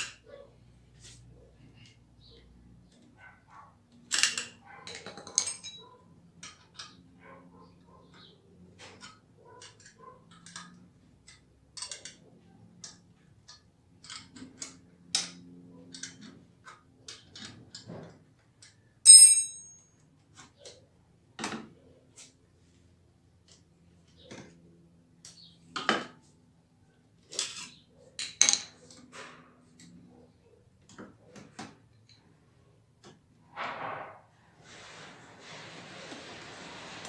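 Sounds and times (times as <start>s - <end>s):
metal clicks and clinks: 4.1s - 7.0s
ringing metallic clink: 19.1s - 19.9s.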